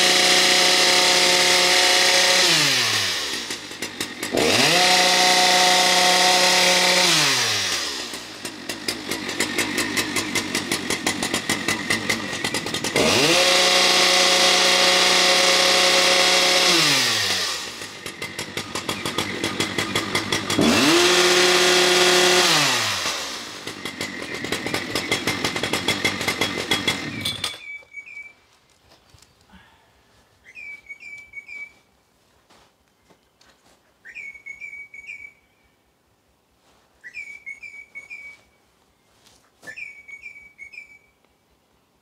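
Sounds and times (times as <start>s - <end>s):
chainsaw running: 0.0s - 27.8s
bird whistled calls: 27.6s - 28.4s, 30.4s - 31.9s, 34.0s - 35.7s, 37.0s - 38.6s, 39.7s - 41.2s.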